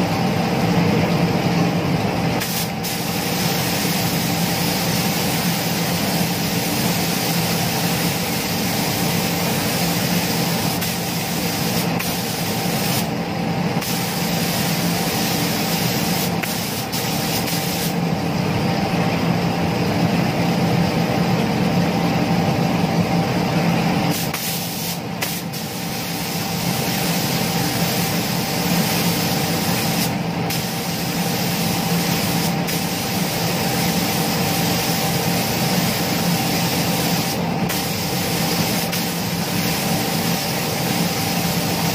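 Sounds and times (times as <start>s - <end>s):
low machine hum: 0.0s - 41.9s
paint spray gun hissing: 2.4s - 13.2s, 13.8s - 18.0s, 24.1s - 41.9s.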